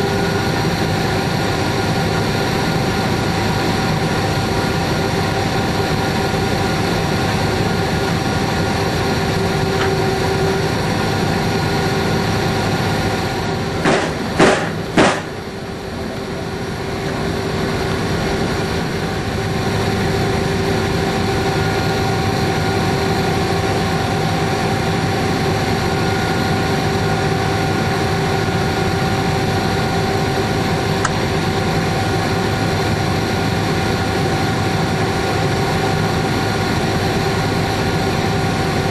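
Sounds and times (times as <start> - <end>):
locomotive engine drone: 0.0 - 38.9
loud sharp knocks: 13.8 - 15.4.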